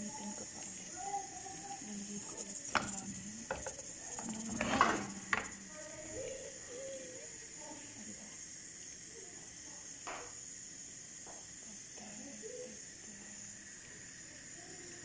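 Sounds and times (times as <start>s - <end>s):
steady high hiss: 0.0s - 15.0s
pan scraping on grate: 2.2s - 5.6s.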